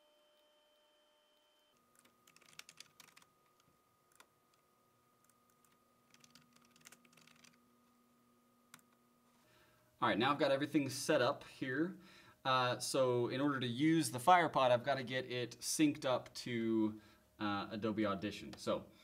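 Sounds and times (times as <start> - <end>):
computer keyboard typing: 1.9 - 4.6, 5.2 - 7.6.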